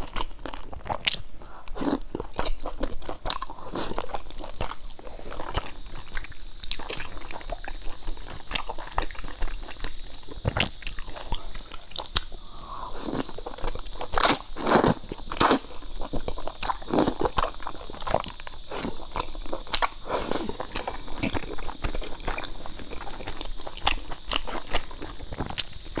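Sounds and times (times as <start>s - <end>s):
chewing with wet smacks: 0.0s - 26.0s
sucking in noodles: 5.3s - 26.0s.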